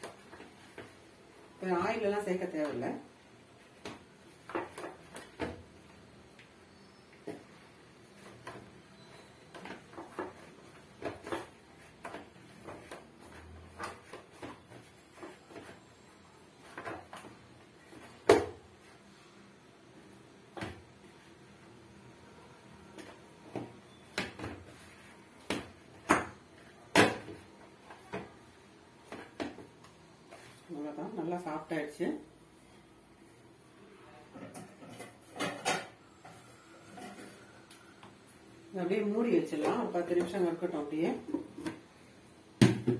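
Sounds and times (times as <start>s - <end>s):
dough kneaded in plastic bowl: 0.0s - 19.0s.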